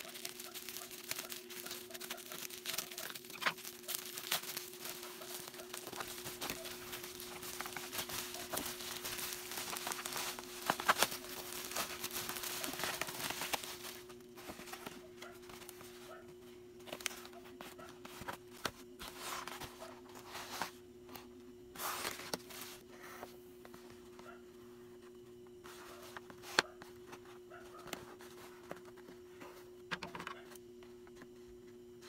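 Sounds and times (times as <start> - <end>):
packing materials crinkling: 0.0 - 15.9
steady low hum: 0.0 - 32.0.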